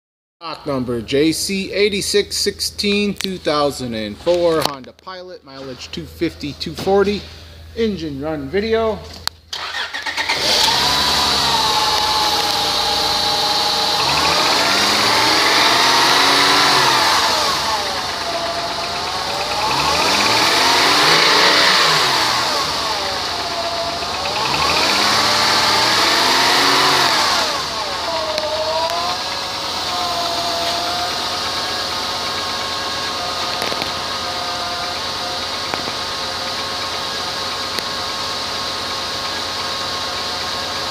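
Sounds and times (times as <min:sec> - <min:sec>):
car engine idling and revving: 0:09.3 - 0:40.9.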